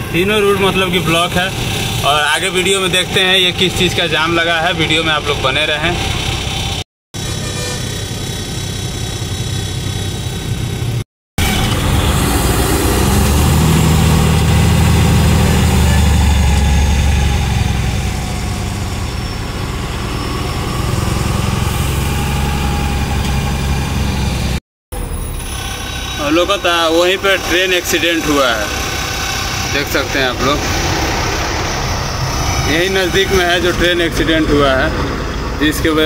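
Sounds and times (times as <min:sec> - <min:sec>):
diesel truck engine: 0:00.0 - 0:36.0.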